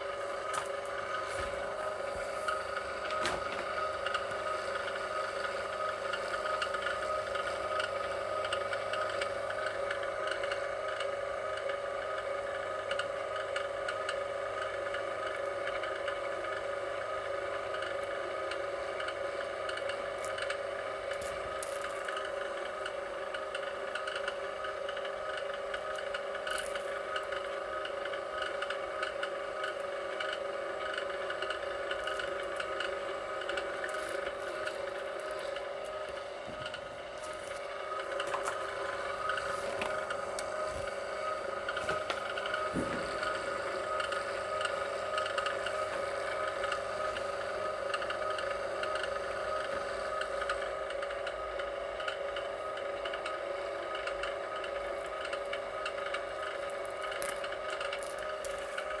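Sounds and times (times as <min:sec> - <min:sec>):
wire stripper motor running: 0:00.0 - 0:59.0
wire scraping and rubbing: 0:20.2 - 0:22.4, 0:25.9 - 0:27.5, 0:28.6 - 0:40.0, 0:56.1 - 0:59.0.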